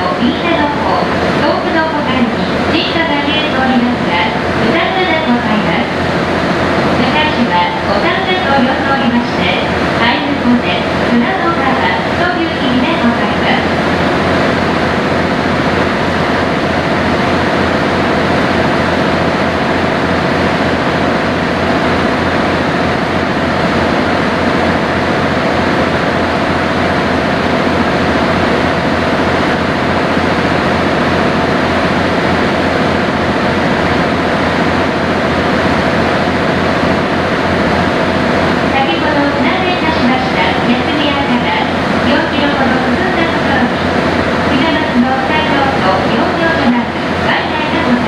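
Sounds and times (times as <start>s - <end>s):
boat engine drone: 0.0s - 48.0s
faint steady hum: 0.0s - 48.0s.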